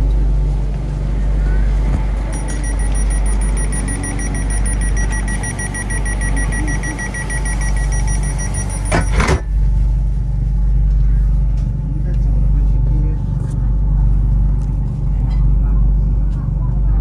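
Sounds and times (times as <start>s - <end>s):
train humming: 0.0s - 16.9s
rapid high-pitched beeping: 2.3s - 9.4s.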